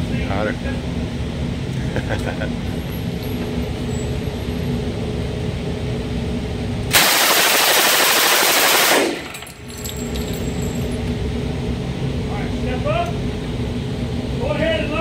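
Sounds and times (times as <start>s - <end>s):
submachine gun full-auto burst: 6.9s - 9.4s.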